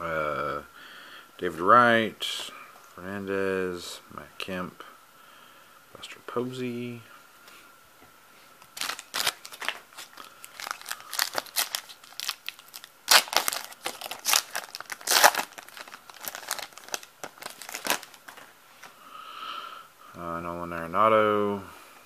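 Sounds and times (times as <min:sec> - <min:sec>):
foil wrapper crinkling and tearing: 0:08.6 - 0:18.9.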